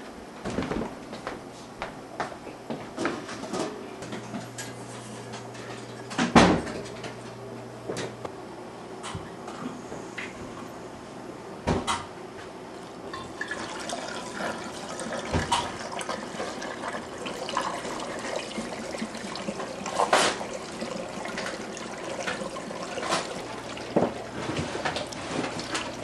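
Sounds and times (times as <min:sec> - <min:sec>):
liquid pouring and splashing: 0:13.1 - 0:26.0.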